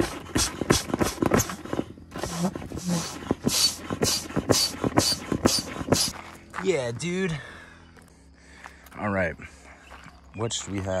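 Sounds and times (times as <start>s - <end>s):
foot pump air whooshes: 0.0s - 6.2s.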